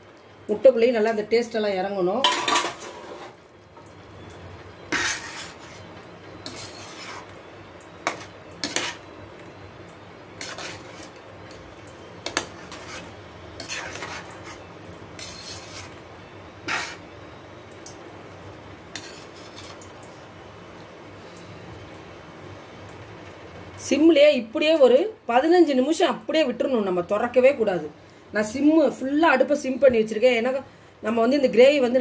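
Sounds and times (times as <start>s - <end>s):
spatula scraping metal pan: 4.9s - 7.4s, 8.0s - 9.0s, 10.4s - 11.2s, 12.2s - 16.0s, 16.6s - 17.1s, 18.9s - 19.8s.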